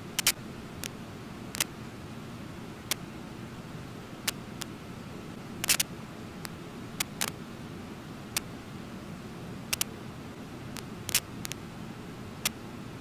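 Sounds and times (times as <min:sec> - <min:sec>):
sharp high clicks: 0:00.2 - 0:01.0, 0:05.6 - 0:07.4, 0:09.7 - 0:09.9, 0:10.7 - 0:11.6.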